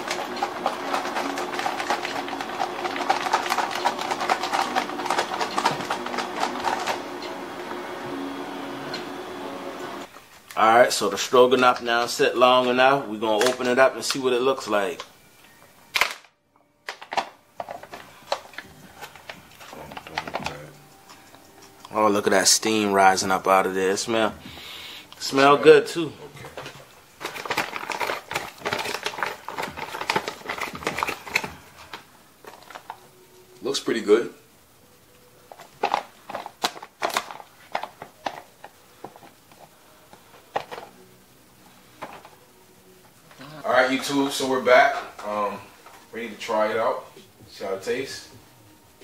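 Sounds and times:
stiff foil crinkling: 0.0s - 7.2s, 15.9s - 25.5s, 26.4s - 33.2s, 35.5s - 41.1s.

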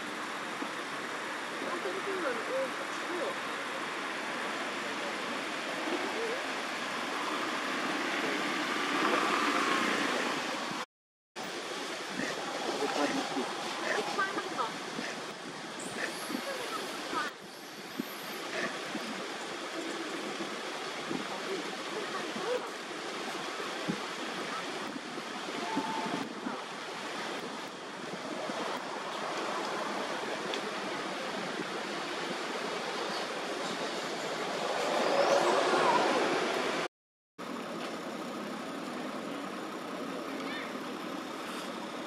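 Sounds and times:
rushing outdoor background noise: 0.0s - 42.0s
wind on microphone: 11.9s - 36.9s.

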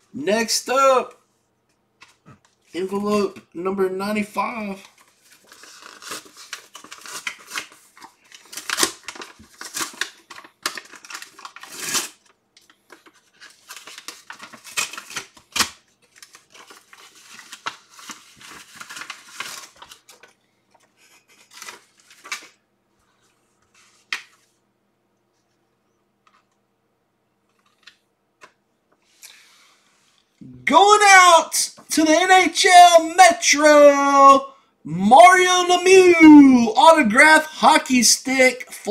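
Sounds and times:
paper envelope tearing: 4.8s - 12.3s, 12.9s - 20.3s.

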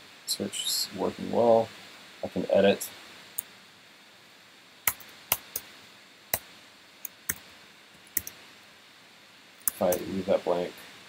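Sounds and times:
faint steady hiss: 0.0s - 11.0s
keyboard and mouse clicks: 4.9s - 5.6s, 8.1s - 8.4s, 9.7s - 10.0s.

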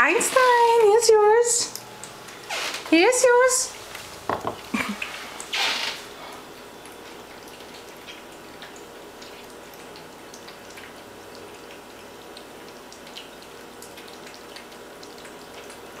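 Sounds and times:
kittens chewing and smacking: 6.3s - 16.0s.

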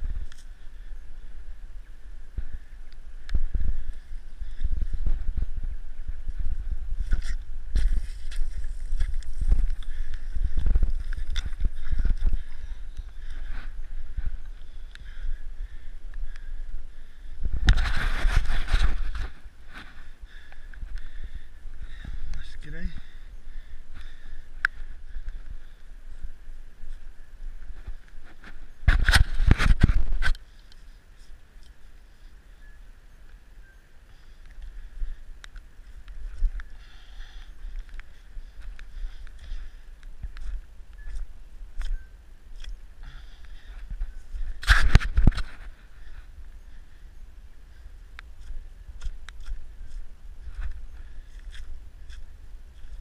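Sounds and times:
low steady hiss: 0.0s - 53.0s
wind buffeting microphone: 1.0s - 28.2s
knocks and rustles through grass: 3.3s - 14.5s, 17.4s - 20.2s.

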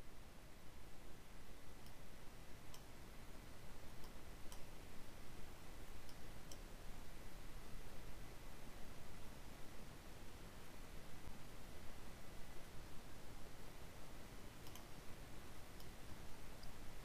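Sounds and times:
low room noise: 0.0s - 17.0s
faint computer mouse clicks: 1.8s - 2.0s, 3.9s - 4.7s, 6.0s - 6.7s, 14.6s - 15.0s, 15.8s - 16.0s.

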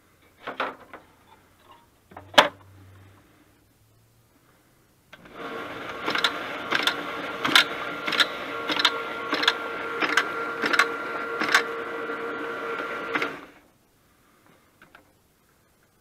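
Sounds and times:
machine clacking envelopes: 5.2s - 13.5s.

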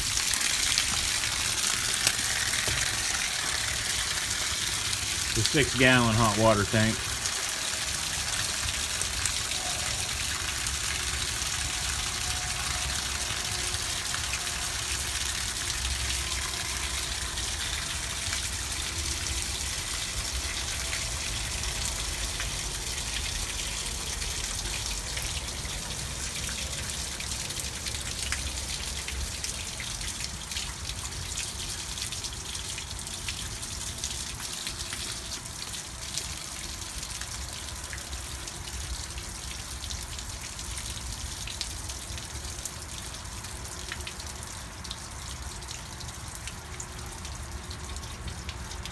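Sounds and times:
water gushing onto gravel: 0.0s - 38.4s.

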